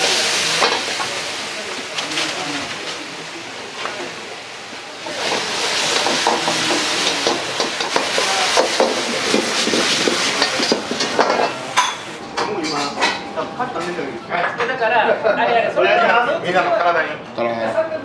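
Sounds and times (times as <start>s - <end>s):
meat sizzling in a wok: 0.0s - 12.2s.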